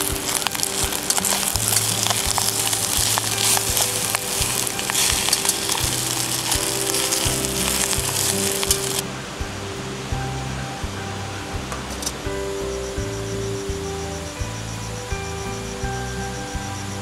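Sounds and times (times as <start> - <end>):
food sizzling in a pot: 0.0 - 9.0.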